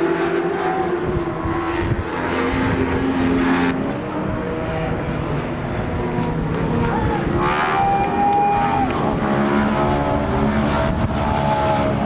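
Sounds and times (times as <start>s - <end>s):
racing motorcycle engines at high revs: 0.0s - 12.0s.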